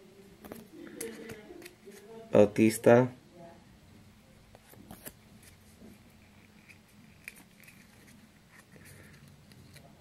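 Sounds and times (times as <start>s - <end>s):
trading cards clicking and rustling: 4.6s - 9.9s.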